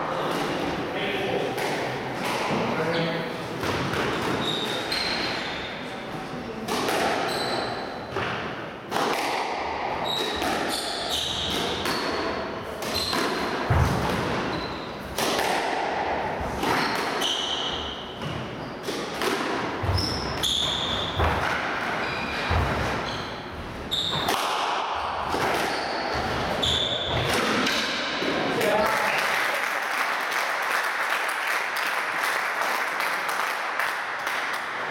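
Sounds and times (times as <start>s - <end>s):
squash ball hitting rackets and walls: 0.1s - 28.8s, 33.6s - 34.9s
shoes squeaking on wooden floor: 19.8s - 21.3s, 22.0s - 24.3s, 25.7s - 27.3s.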